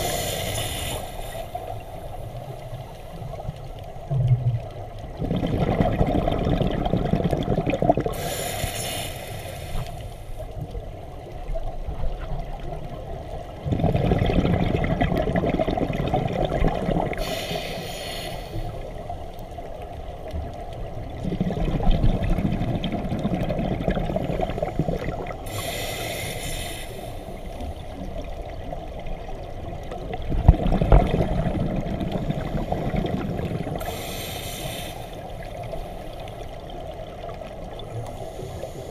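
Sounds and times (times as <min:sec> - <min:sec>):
scuba regulator inhalation hiss: 0:00.0 - 0:02.7, 0:08.1 - 0:10.5, 0:17.1 - 0:19.0, 0:24.4 - 0:27.6, 0:33.7 - 0:36.3, 0:38.0 - 0:38.9
exhaled bubbles gushing: 0:04.0 - 0:08.3, 0:11.8 - 0:17.4, 0:20.9 - 0:25.5, 0:27.7 - 0:34.0.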